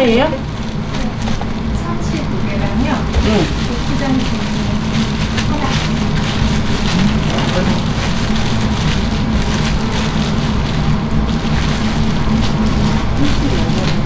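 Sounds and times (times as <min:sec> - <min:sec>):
faint voices: 0:00.0 - 0:08.4
low hum: 0:00.0 - 0:14.0.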